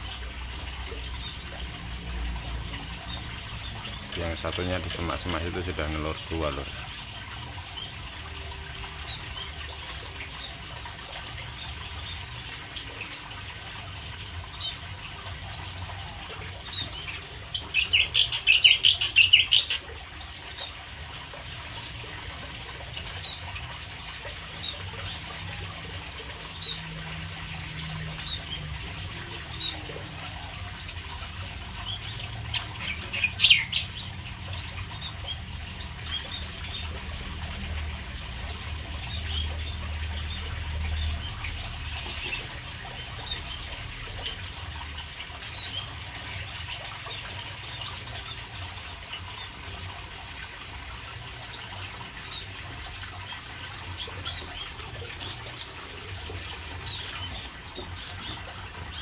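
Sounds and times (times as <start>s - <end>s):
running water: 0.0s - 59.0s
canaries chirping: 16.7s - 19.8s, 31.6s - 37.3s.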